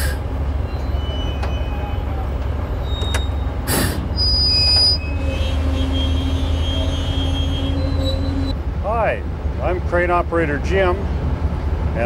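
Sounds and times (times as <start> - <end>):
crane diesel engine rumbling: 0.0 - 12.0
high steady squeal: 0.6 - 8.6.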